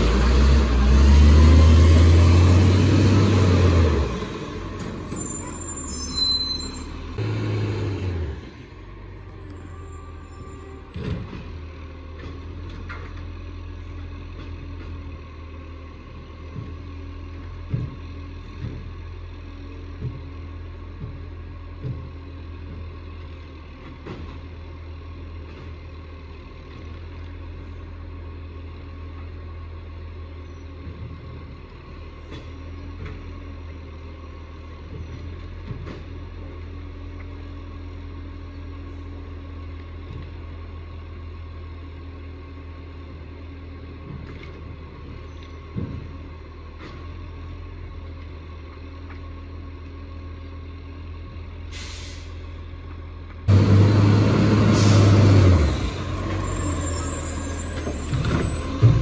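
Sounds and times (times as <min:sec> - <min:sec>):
diesel garbage truck engine: 0:00.0 - 0:59.0
distant garbage truck engine: 0:00.0 - 0:59.0
brief hiss: 0:51.7 - 0:52.4.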